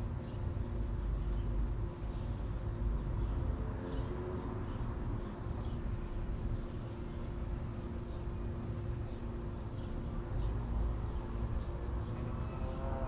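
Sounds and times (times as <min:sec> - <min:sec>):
small birds chirping: 0:00.0 - 0:12.8
low outdoor rumble: 0:00.0 - 0:13.0.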